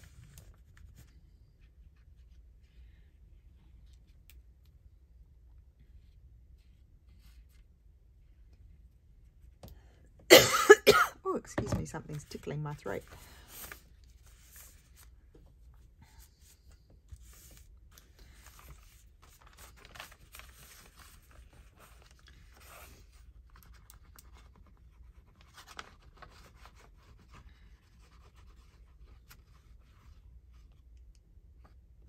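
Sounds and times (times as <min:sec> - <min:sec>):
paper rubbing and rustling: 0:00.0 - 0:02.7, 0:11.8 - 0:30.9.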